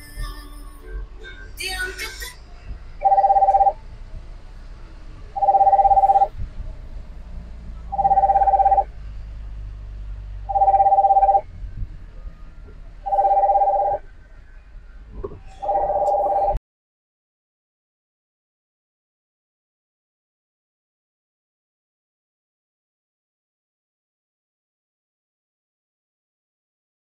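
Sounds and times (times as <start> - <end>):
vehicle rumble: 0.0 - 16.6
telephone ringing: 3.0 - 3.8, 5.4 - 6.3, 7.9 - 8.9, 10.5 - 11.4, 13.1 - 14.0, 15.6 - 16.6.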